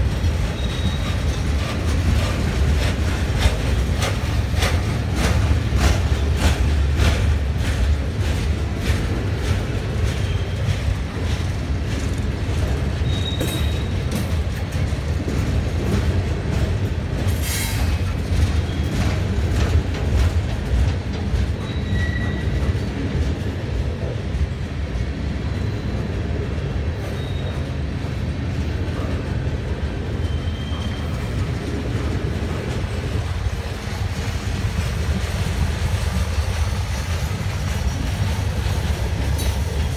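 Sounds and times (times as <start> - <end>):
train wheel squeals: 0.0 - 7.8, 8.9 - 11.5, 12.5 - 14.6, 17.2 - 19.8, 21.1 - 23.0, 25.3 - 26.2, 26.8 - 29.2, 30.0 - 31.7
freight train rumbling past: 0.0 - 39.9.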